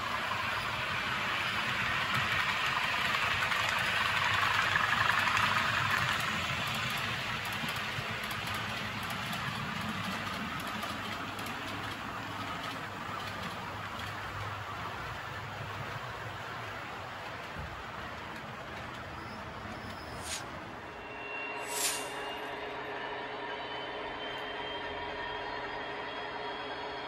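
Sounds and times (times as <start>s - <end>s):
model train rolling rumble: 0.0s - 20.9s.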